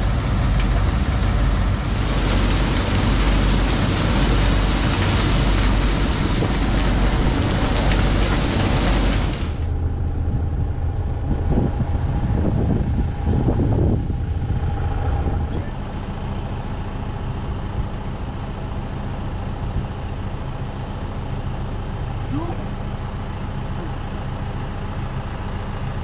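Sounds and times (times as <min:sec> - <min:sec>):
tractor engine: 0:00.0 - 0:12.2, 0:14.1 - 0:26.0
corn sheller running: 0:00.1 - 0:09.7.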